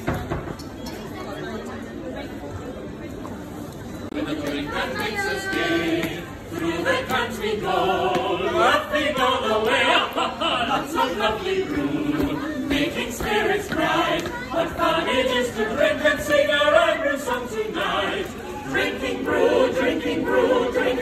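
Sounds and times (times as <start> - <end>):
choir singing: 4.2 - 21.0.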